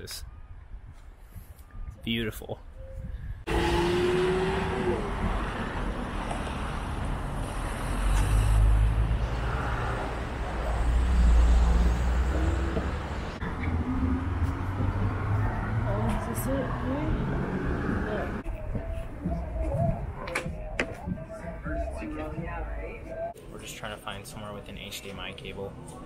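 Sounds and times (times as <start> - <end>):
cars driving past rumbling: 3.4 - 18.4.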